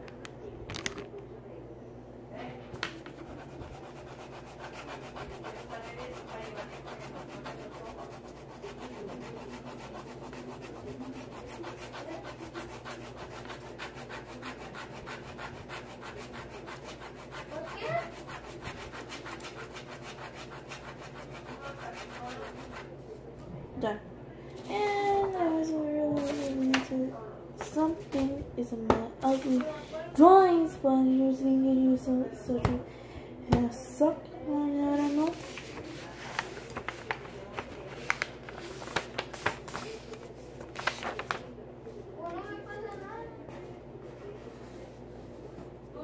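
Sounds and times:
pencil shading on paper: 0:03.1 - 0:22.9.

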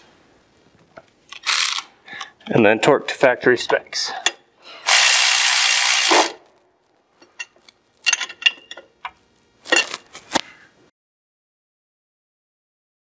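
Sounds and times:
cordless ratchet running: 0:01.4 - 0:01.9, 0:04.9 - 0:06.4.

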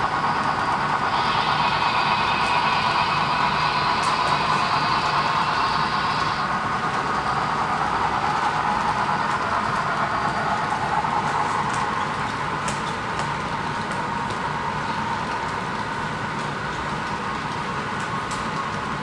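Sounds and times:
model train whirring rattle: 0:00.3 - 0:19.0.

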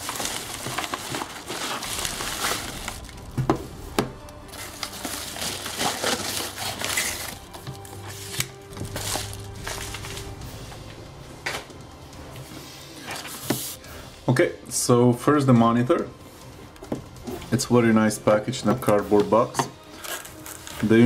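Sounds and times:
paper envelope rustling and crinkling: 0:00.0 - 0:03.4, 0:04.2 - 0:10.4, 0:20.0 - 0:21.0
background music: 0:00.0 - 0:21.0.

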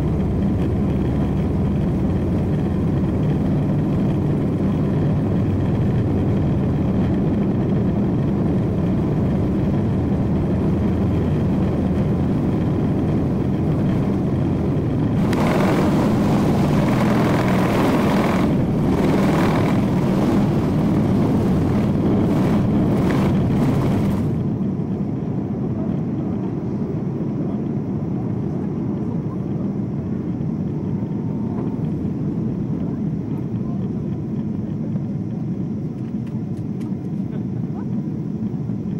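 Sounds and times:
rattling rumble with bumps: 0:00.0 - 0:25.4
jet engine drone: 0:00.0 - 0:38.9.

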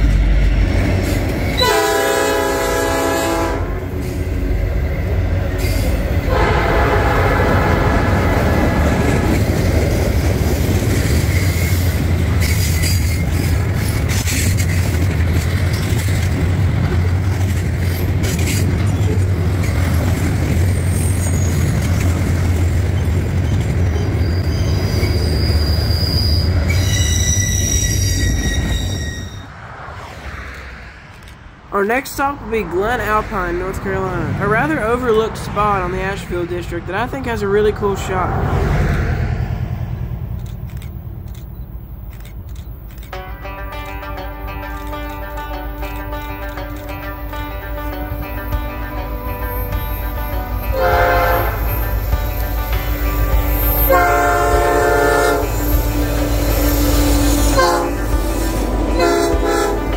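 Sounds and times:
rail cars rumbling and clattering: 0:00.0 - 0:59.9
locomotive air horn: 0:01.5 - 0:04.2, 0:05.6 - 0:08.8, 0:43.1 - 0:59.9
high thin wheel squeal: 0:11.1 - 0:13.6, 0:20.7 - 0:22.0, 0:23.8 - 0:29.6, 0:55.1 - 0:59.6.

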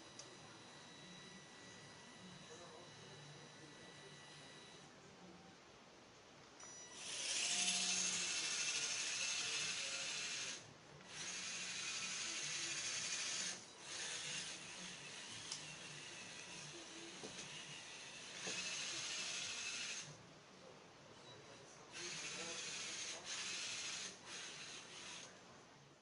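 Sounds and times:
toy car motor whirring: 0:07.0 - 0:20.2, 0:21.9 - 0:25.3.

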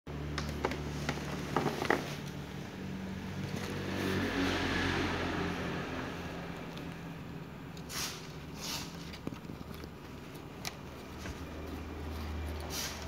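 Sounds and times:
low mechanical hum: 0:05.5 - 0:13.0.

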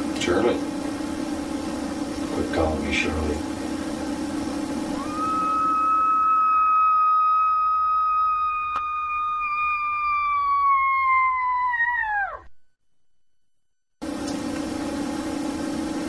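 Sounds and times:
high whistle-like tone: 0:05.0 - 0:10.8.

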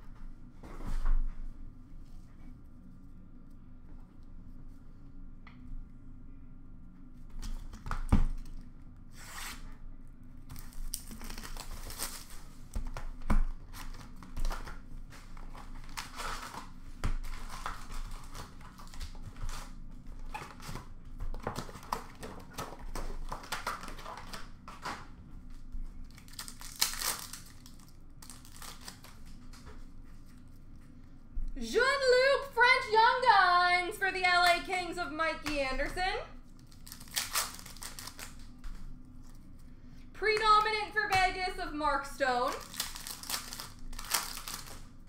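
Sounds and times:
foil wrappers tearing and crinkling: 0:10.5 - 0:13.0, 0:13.7 - 0:19.8, 0:26.0 - 0:29.6, 0:36.4 - 0:38.6, 0:42.5 - 0:45.0.

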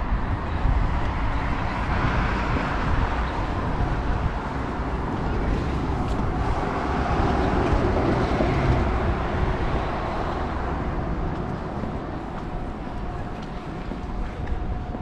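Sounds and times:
city street noise: 0:00.0 - 0:15.0
vehicle rumbling past: 0:00.7 - 0:14.2.

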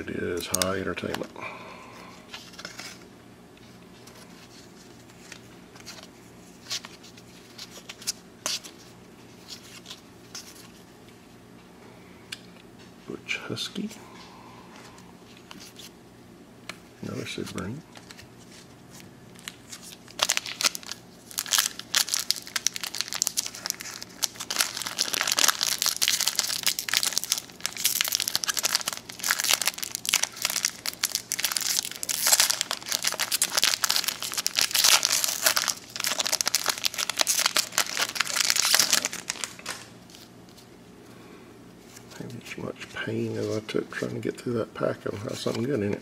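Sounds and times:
foil wrapper tearing and crinkling: 0:19.4 - 0:40.3.

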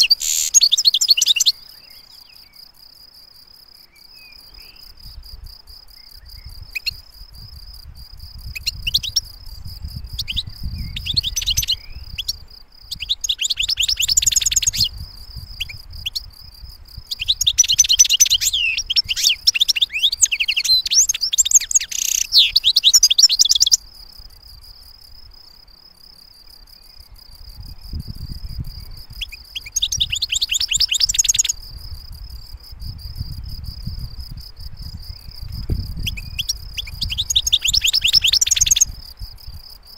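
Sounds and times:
bird twittering and trilling: 0:00.0 - 0:02.6, 0:08.4 - 0:16.3, 0:17.0 - 0:23.8, 0:27.6 - 0:31.7, 0:34.8 - 0:39.1.

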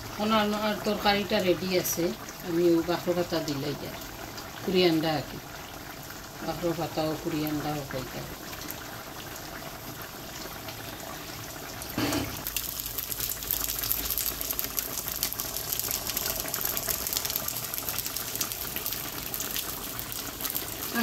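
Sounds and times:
liquid rushing with fine crackle: 0:12.4 - 0:21.0.

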